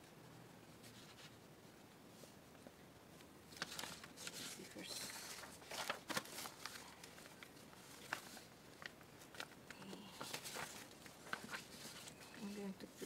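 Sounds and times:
paper bag rustling: 3.5 - 13.0.

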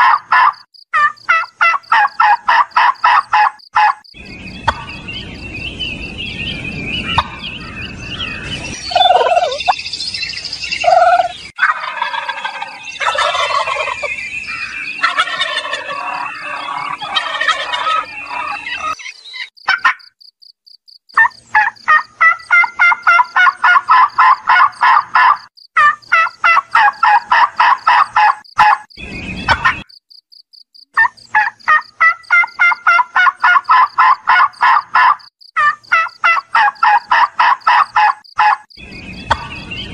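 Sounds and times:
turkeys gobbling: 0.0 - 4.0, 4.6 - 5.0, 7.1 - 7.5, 8.8 - 9.8, 10.8 - 19.1, 19.7 - 20.0, 21.2 - 28.9, 29.5 - 29.8, 31.0 - 38.7, 39.3 - 39.9.

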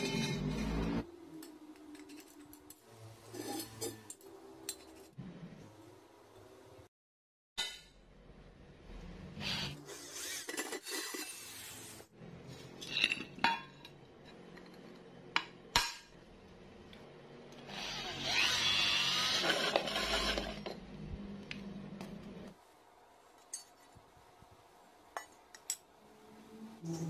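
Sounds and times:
electric drill cutting steel: 17.6 - 20.6.

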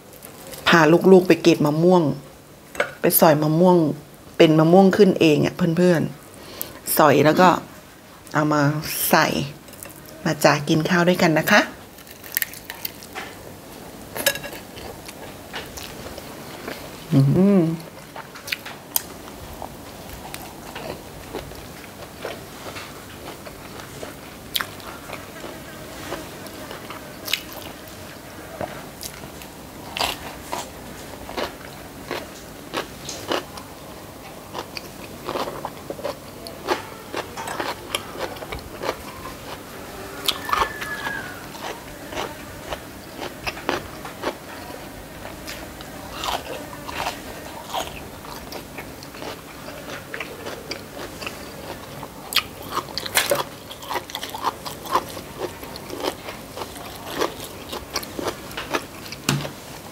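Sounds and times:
person chewing crunchy food: 11.8 - 13.4, 17.8 - 27.8, 29.0 - 59.6.

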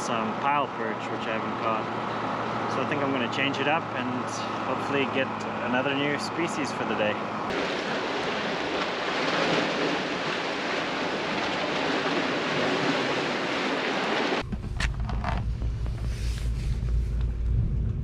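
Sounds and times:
sea waves: 0.1 - 14.4.

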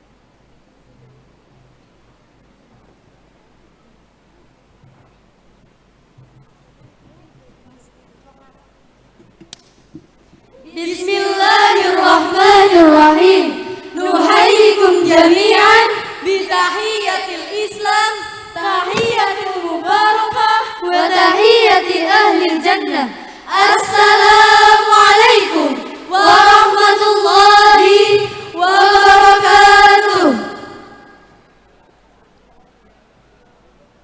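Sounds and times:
girls' choir singing: 10.7 - 31.4.

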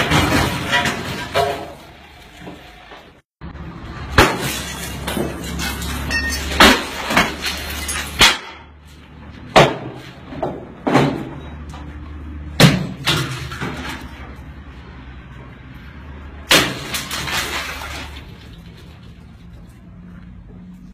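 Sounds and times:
breaking glass and plastic: 0.0 - 2.1, 4.1 - 8.6, 12.6 - 14.2, 16.5 - 18.9.

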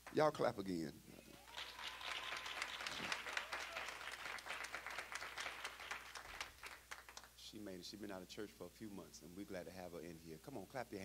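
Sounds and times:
congregation applauding: 1.3 - 7.3.

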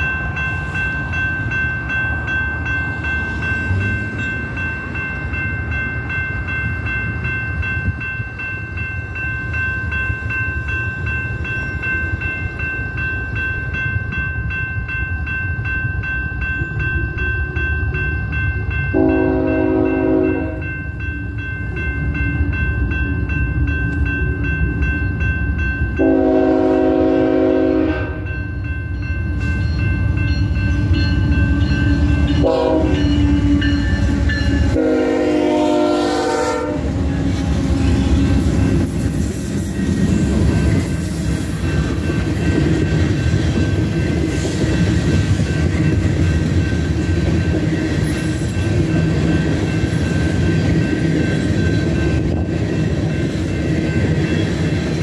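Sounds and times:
crossing bell ringing: 0.0 - 55.0
freight train rumbling: 0.0 - 55.0
locomotive horn blasts: 18.9 - 20.7, 26.0 - 28.3, 32.4 - 33.7, 34.4 - 38.2.

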